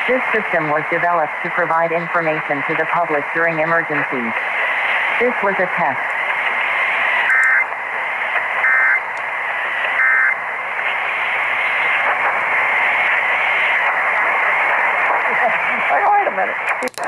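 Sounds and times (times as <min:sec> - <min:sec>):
radio static hiss: 0:00.0 - 0:17.0
two-tone data bursts: 0:06.8 - 0:14.3.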